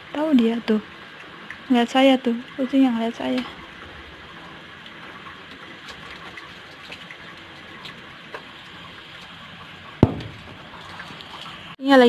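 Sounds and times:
rainwater hissing: 0:00.0 - 0:11.8
water drips ticking: 0:00.0 - 0:11.8
sharp knock: 0:10.0 - 0:10.6.

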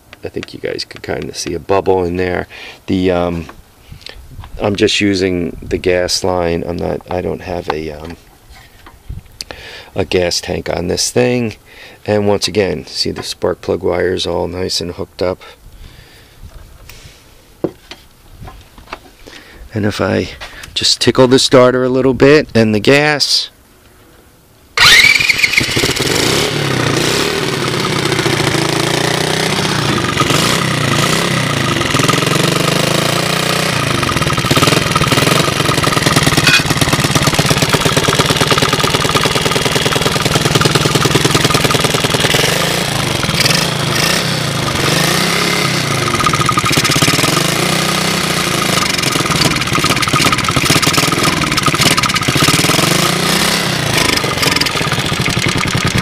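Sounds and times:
electric starter: 0:24.8 - 0:56.0
small engine revving: 0:24.8 - 0:56.0.

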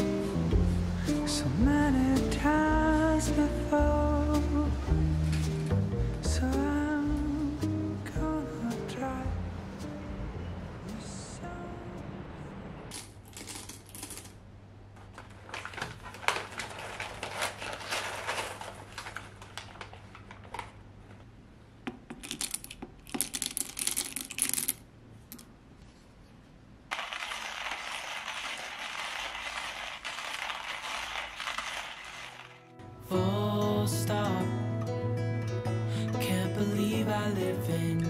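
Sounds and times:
coffee beans rattling into metal: 0:12.9 - 0:14.4, 0:15.5 - 0:19.8, 0:22.1 - 0:25.4, 0:26.9 - 0:32.7
coffee grinder crunching: 0:15.5 - 0:20.7, 0:26.9 - 0:32.7
coffee grinder clicks and rattles: 0:26.9 - 0:32.6.

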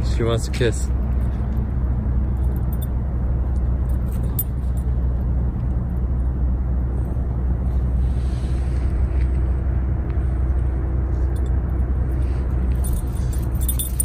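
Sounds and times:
low engine hum: 0:00.0 - 0:14.0
faint metallic jingles: 0:00.6 - 0:05.2, 0:11.2 - 0:14.0.

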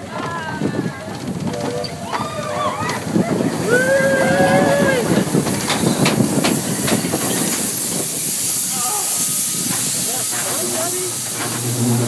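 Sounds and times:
roller coaster rattling on track: 0:00.0 - 0:12.0
steady hiss: 0:03.9 - 0:12.0.

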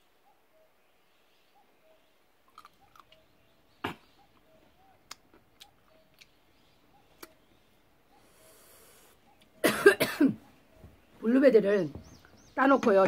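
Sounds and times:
woman coughing: 0:09.6 - 0:10.4.

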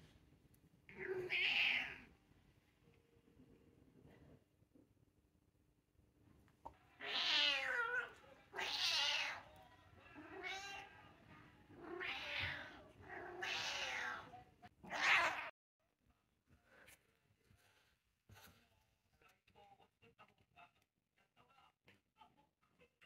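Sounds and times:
cat meowing: 0:00.9 - 0:02.1, 0:07.0 - 0:09.5, 0:10.1 - 0:11.0, 0:11.7 - 0:15.5.

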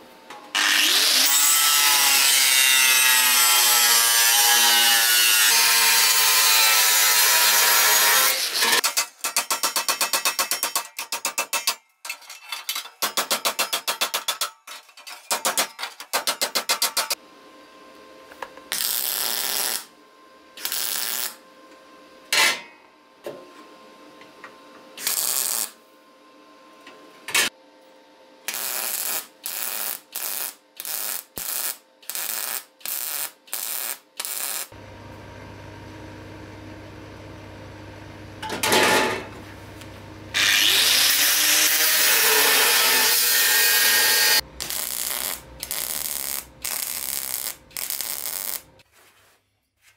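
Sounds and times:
hammer beating sheet steel: 0:08.8 - 0:11.8
welding arc crackling: 0:18.7 - 0:19.9, 0:20.6 - 0:21.4, 0:25.0 - 0:25.8, 0:28.5 - 0:34.8, 0:40.4 - 0:48.8
angle grinder grinding steel: 0:40.4 - 0:48.7.

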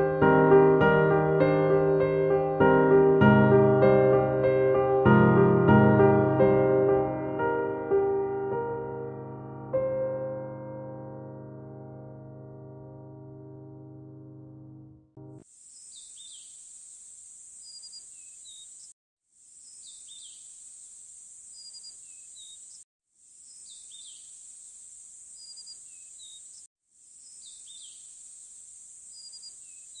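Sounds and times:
insect drone: 0:15.4 - 0:30.0
bird chirps: 0:15.7 - 0:17.0, 0:17.6 - 0:18.9, 0:19.6 - 0:20.7, 0:21.5 - 0:22.8, 0:23.4 - 0:24.4, 0:25.3 - 0:28.2, 0:29.1 - 0:30.0.

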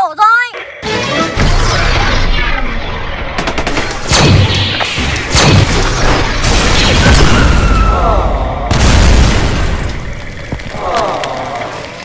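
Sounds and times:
explosion: 0:01.3 - 0:11.8
tank cannon firing: 0:01.4 - 0:10.5
rapid gunshots: 0:03.2 - 0:09.8.

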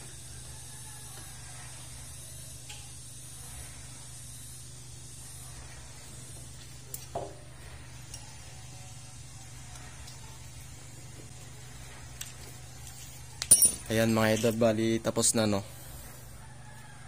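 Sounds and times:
low hum and hiss: 0:00.0 - 0:17.0
metallic clink of hand tool: 0:13.4 - 0:14.6.

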